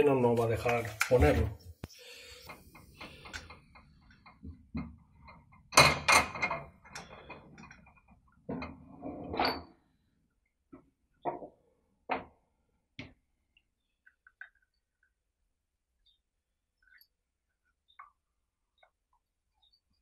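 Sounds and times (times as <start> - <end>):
clicks and knocks of metal parts: 2.5 - 8.8.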